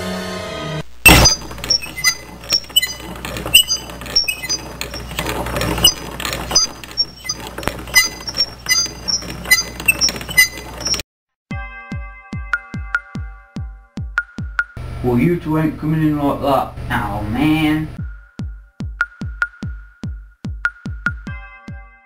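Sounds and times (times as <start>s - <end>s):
shopping cart wheels rattling: 1.1s - 11.0s.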